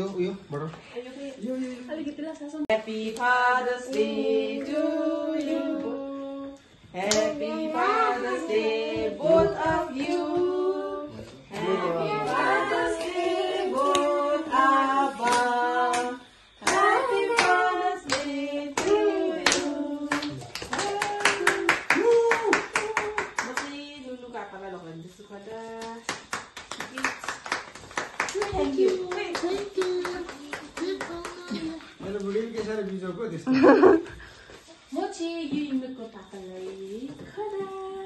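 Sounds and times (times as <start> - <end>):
group singing: 2.7 - 21.7
hand claps: 15.2 - 18.2, 18.8 - 23.7, 25.8 - 32.7
applause: 20.1 - 23.7, 26.1 - 31.5.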